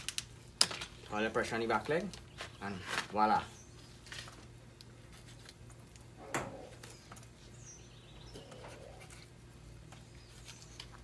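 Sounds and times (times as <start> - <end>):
steady low hum: 0.0 - 11.0
bird chirp: 6.2 - 9.2, 10.0 - 11.0.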